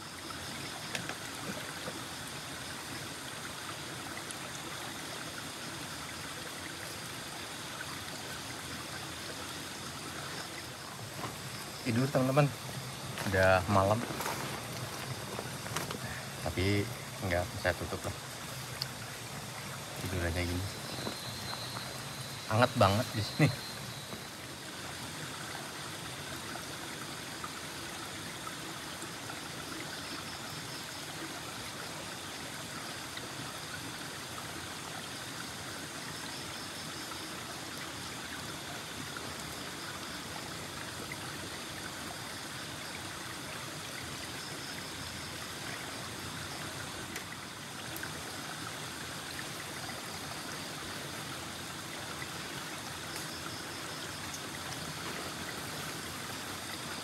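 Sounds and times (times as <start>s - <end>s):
river water rushing over boulders: 0.0s - 29.8s.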